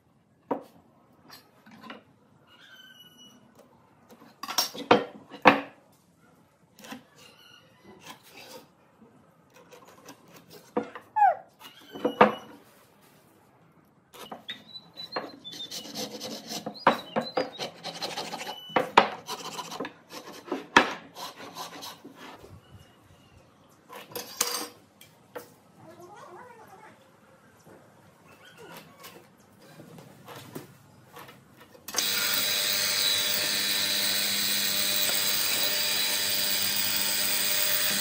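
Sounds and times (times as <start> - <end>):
pencil scratching on timber: 15.4 - 16.8, 17.5 - 22.4.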